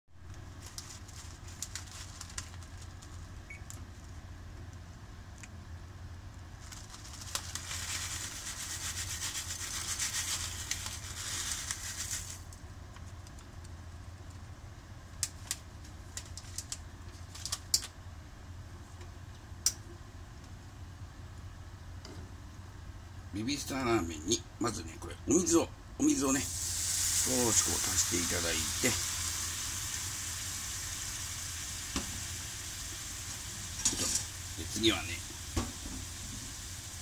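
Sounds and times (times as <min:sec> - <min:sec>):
dry noodles pouring into pan: 0:06.6 - 0:12.5, 0:26.5 - 0:37.0.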